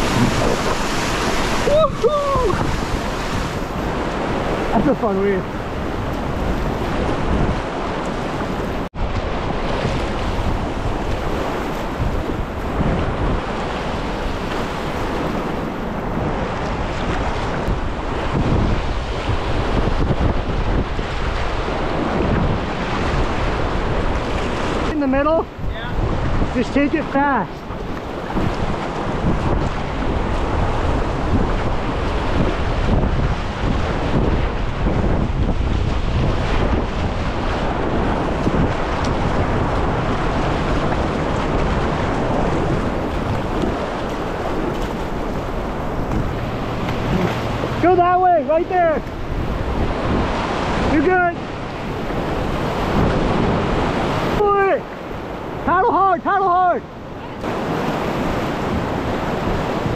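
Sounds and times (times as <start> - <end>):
whitewater rapids rushing: 0.0 - 5.8, 35.8 - 59.9
whitewater rushing: 0.0 - 59.9
wind buffeting microphone: 0.0 - 59.9.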